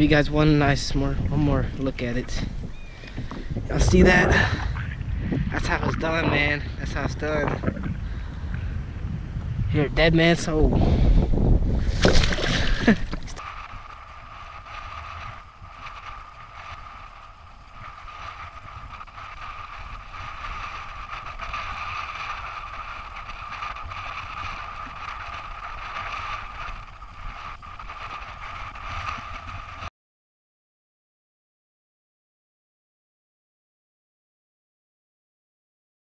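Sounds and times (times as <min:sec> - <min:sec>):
fish splashing: 0:11.9 - 0:13.8.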